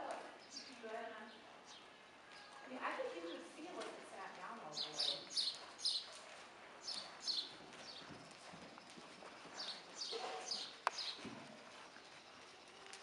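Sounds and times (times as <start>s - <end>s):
horse hooves on soft dirt: 0.0s - 13.0s
birds chirping: 4.6s - 6.2s, 6.8s - 13.0s.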